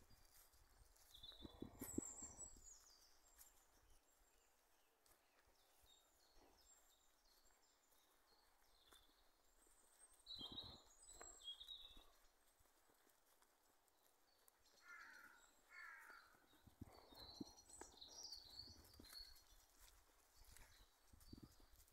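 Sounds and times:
footsteps in dry leaves: 0:00.0 - 0:04.0
birds chirping: 0:00.2 - 0:12.4, 0:14.0 - 0:21.9.

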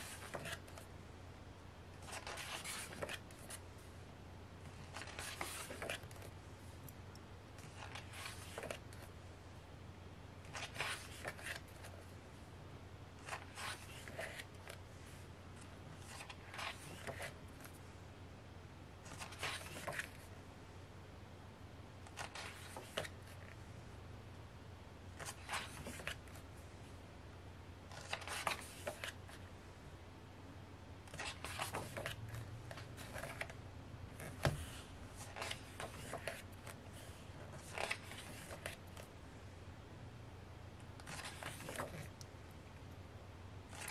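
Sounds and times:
book pages turning: 0:00.0 - 0:00.9, 0:02.0 - 0:03.6, 0:04.7 - 0:06.4, 0:07.6 - 0:09.1, 0:10.4 - 0:12.0, 0:13.2 - 0:14.8, 0:16.0 - 0:17.8, 0:19.0 - 0:20.2, 0:22.1 - 0:23.6, 0:25.2 - 0:26.5, 0:27.9 - 0:29.4, 0:31.1 - 0:39.1, 0:41.0 - 0:42.2, 0:43.7 - 0:43.9
paper rustling: 0:34.2 - 0:39.1, 0:41.0 - 0:42.1.

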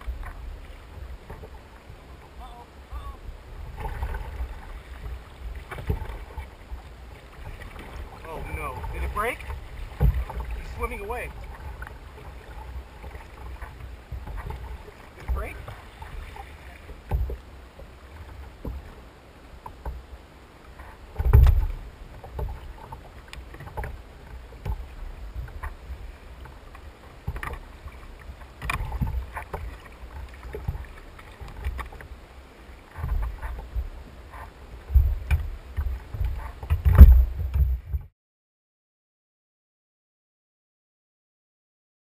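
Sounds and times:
knocks on plastic kayak hull: 0:09.9 - 0:10.4.

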